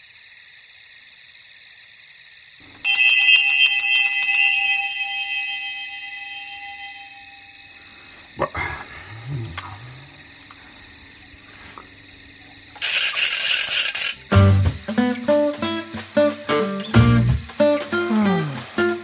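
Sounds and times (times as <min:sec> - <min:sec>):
high-pitched chirring: 0:04.3 - 0:17.0
plucked acoustic guitar music: 0:14.2 - 0:19.0.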